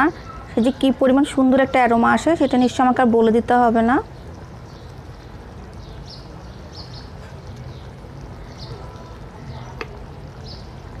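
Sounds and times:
faint bird chirps: 0:04.0 - 0:10.8.

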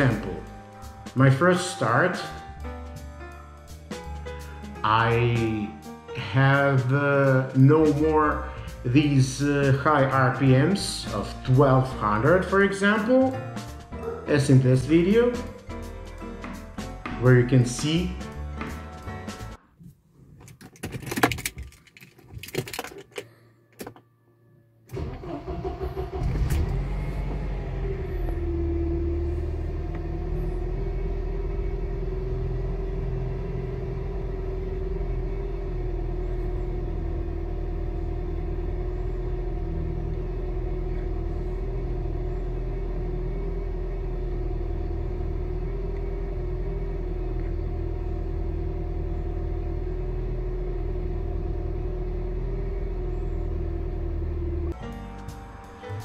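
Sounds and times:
engine cranking: 0:24.9 - 0:54.8
engine fast idle: 0:24.9 - 0:54.8.

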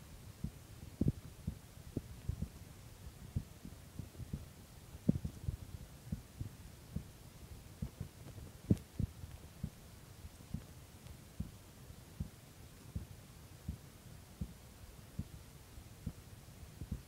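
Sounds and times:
faint steady hum: 0:00.0 - 0:17.0
heartbeat thumps: 0:00.4 - 0:02.6, 0:03.3 - 0:07.2, 0:07.8 - 0:09.8, 0:11.4 - 0:11.6, 0:12.2 - 0:12.4, 0:13.0 - 0:14.6, 0:15.2 - 0:15.4, 0:16.0 - 0:16.2, 0:16.8 - 0:17.0.

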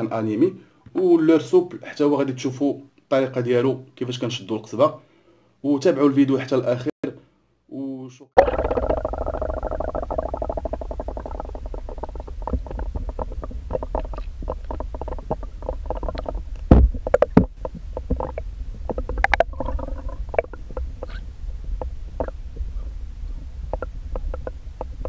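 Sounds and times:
underwater rumble of moving water: 0:08.4 - 0:25.0.

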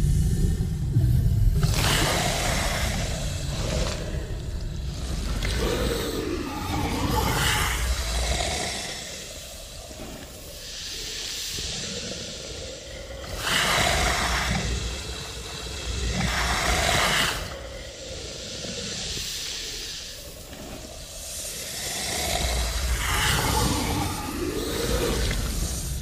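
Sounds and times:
low rumble: 0:00.0 - 0:08.8
creature breathy hisses: 0:00.0 - 0:26.0.

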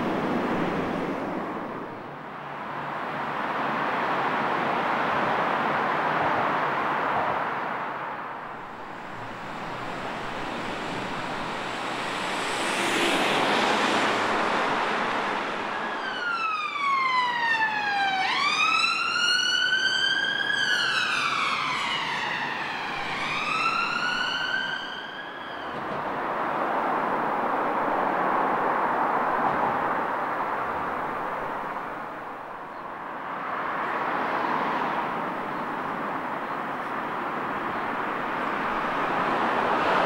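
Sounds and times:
road traffic noise: 0:00.0 - 0:40.0
emergency siren wailing: 0:08.6 - 0:26.2.

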